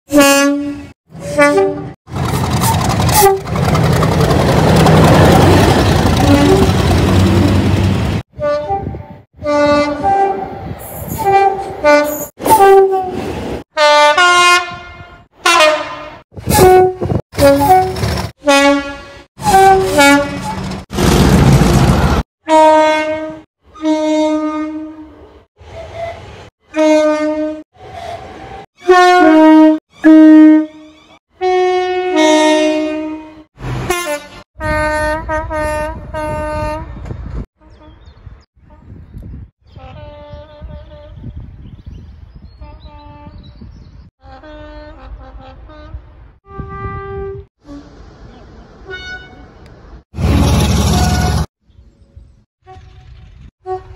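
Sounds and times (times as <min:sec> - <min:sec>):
locomotive two-tone horn blasts: 0:00.1 - 0:03.6, 0:06.2 - 0:06.8, 0:08.3 - 0:13.2, 0:13.8 - 0:20.7, 0:22.4 - 0:28.2, 0:28.8 - 0:37.0, 0:39.8 - 0:41.3, 0:44.2 - 0:48.0, 0:48.8 - 0:49.6, 0:50.2 - 0:51.5, 0:53.6 - 0:53.9
locomotive passing rush: 0:01.1 - 0:08.2, 0:17.3 - 0:23.4, 0:47.1 - 0:51.5.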